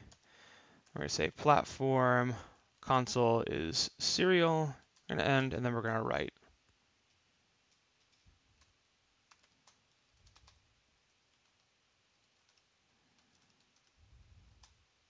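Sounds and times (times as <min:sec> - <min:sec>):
typing on computer keyboard: 0:09.3 - 0:10.6, 0:11.3 - 0:14.0.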